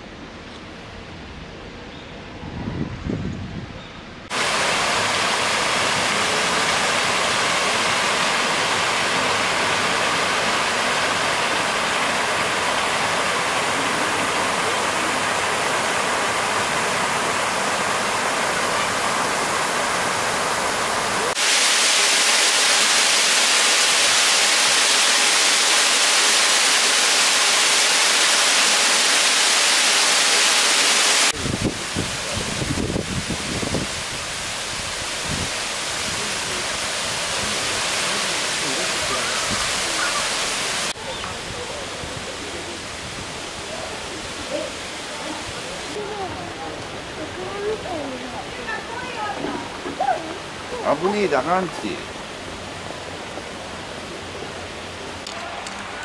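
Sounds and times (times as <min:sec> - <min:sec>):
rushing falling water: 0:04.3 - 0:56.0.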